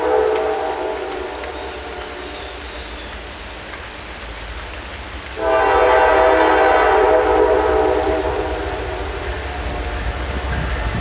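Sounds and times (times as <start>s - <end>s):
locomotive air horn blast: 0.0s - 2.0s, 5.4s - 10.3s.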